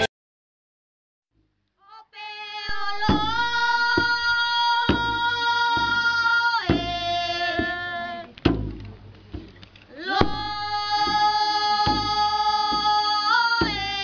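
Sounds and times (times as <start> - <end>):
children singing a chant: 2.4 - 8.3, 10.0 - 14.0
drum beats: 2.7 - 9.6, 10.2 - 14.0.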